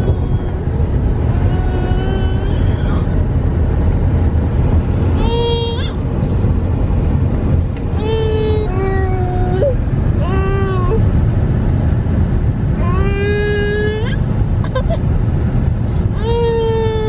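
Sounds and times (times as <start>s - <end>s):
toddler crying: 0.0s - 0.6s, 1.3s - 3.1s, 16.1s - 17.0s
car cabin rumble: 0.0s - 17.0s.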